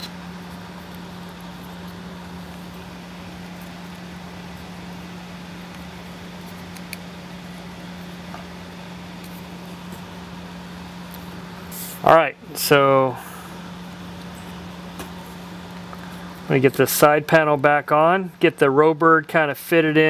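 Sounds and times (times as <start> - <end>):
low background hum: 0.0 - 20.0
faint hiss: 11.5 - 13.7.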